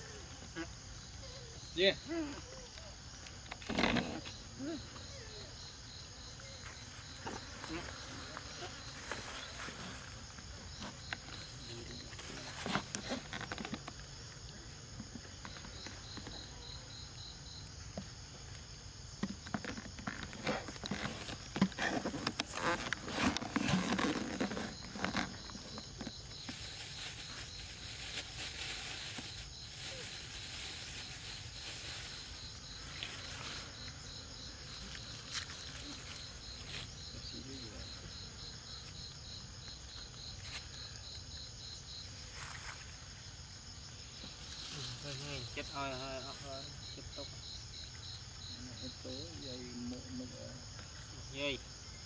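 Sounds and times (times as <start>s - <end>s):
insects chirping and trilling: 0.0s - 52.0s
rustling: 19.2s - 37.9s.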